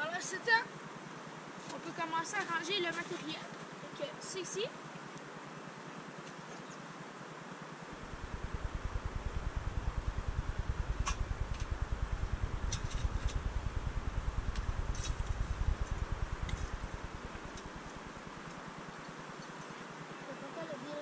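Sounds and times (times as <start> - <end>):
low pulsing rumble: 7.9 - 18.9.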